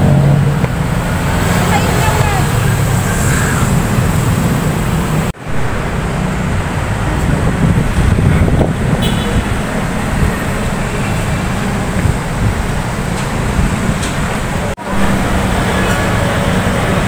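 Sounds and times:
city street traffic rumble: 0.0s - 17.0s.

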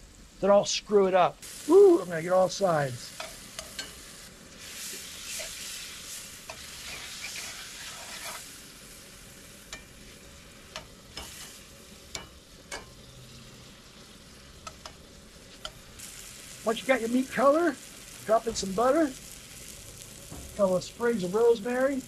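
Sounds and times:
steaks sizzling in a skillet: 1.4s - 22.0s
metal tongs clicking on a pan: 3.2s - 4.0s, 9.7s - 10.0s, 10.7s - 13.0s, 14.6s - 15.0s, 15.6s - 15.9s.

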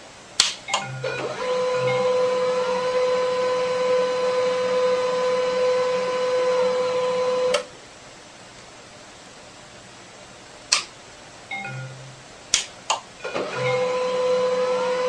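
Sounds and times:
small motor whining: 1.0s - 7.6s, 13.3s - 15.0s.

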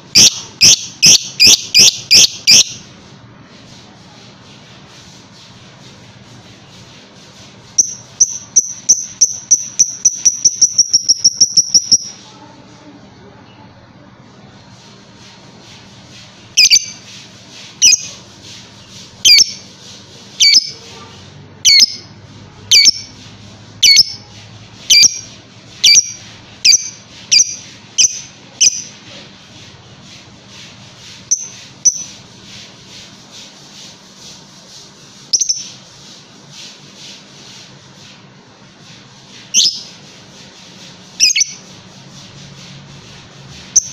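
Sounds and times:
lovebird shrill squawking calls: 0.2s - 2.8s, 17.8s - 18.1s, 19.3s - 19.6s, 20.4s - 20.8s, 21.7s - 22.1s, 41.2s - 41.6s
fast faint chatter: 12.1s - 15.4s, 19.7s - 22.7s.

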